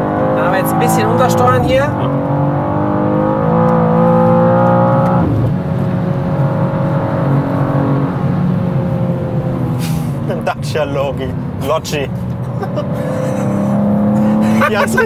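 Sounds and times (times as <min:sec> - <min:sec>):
car engine accelerating hard: 0:00.0 - 0:15.0.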